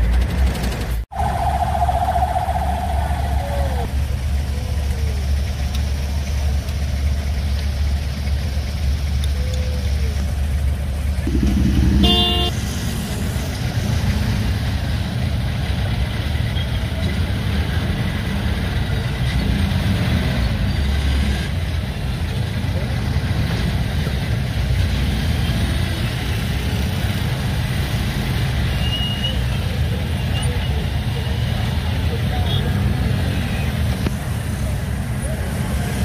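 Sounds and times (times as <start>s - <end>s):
engines and street traffic rumble: 0.0s - 36.0s
vehicle horn toot: 11.9s - 12.6s.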